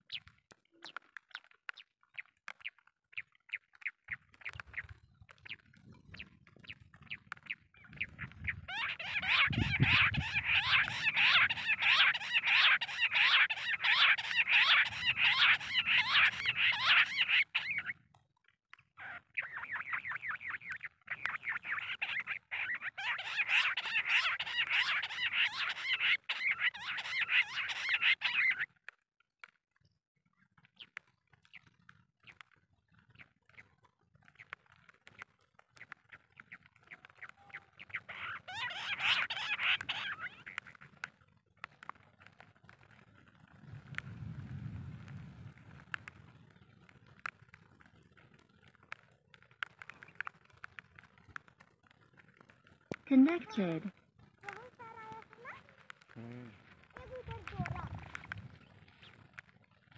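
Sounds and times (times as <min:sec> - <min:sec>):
quail calls from speaker: 0:08.5 - 0:17.9, 0:21.2 - 0:28.7, 0:37.9 - 0:40.6.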